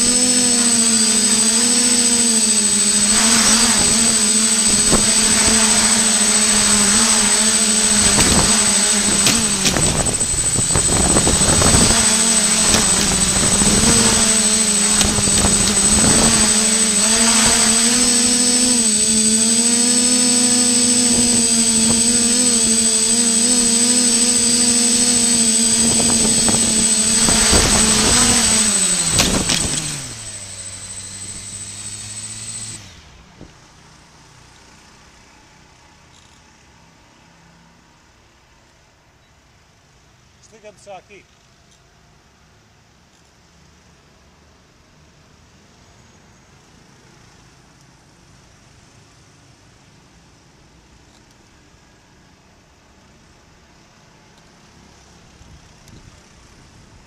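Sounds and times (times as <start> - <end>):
quadcopter motors whining: 0.0 - 35.4.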